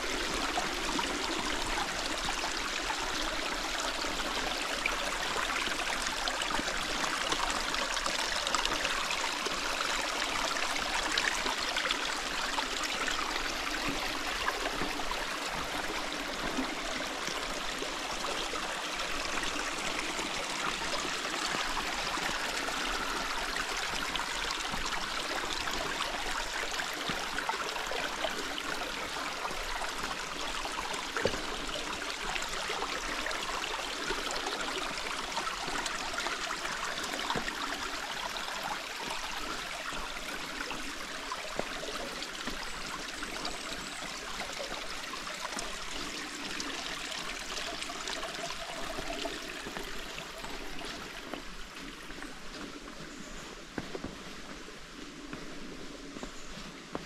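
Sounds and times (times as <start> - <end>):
stream water rushing: 0.0 - 53.2.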